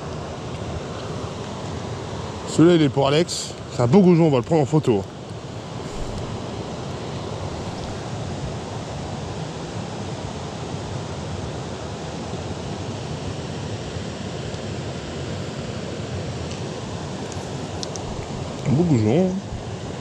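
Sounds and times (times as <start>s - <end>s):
river water rushing over weir: 5.4s - 20.0s.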